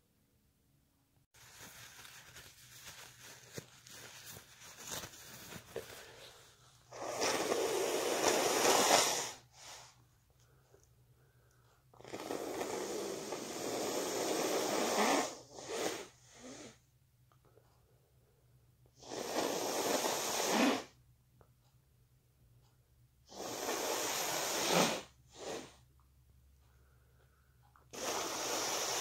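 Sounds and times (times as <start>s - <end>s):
person blowing nose: 3.2s - 10.0s, 12.0s - 16.8s, 19.0s - 21.0s, 23.3s - 25.8s, 27.9s - 29.0s.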